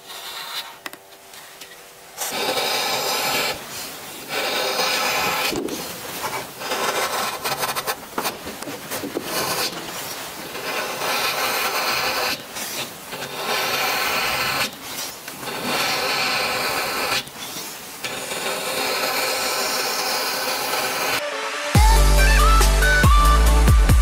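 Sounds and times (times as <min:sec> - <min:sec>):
chisel scraping wood: 0:00.0 - 0:01.0, 0:02.2 - 0:21.2.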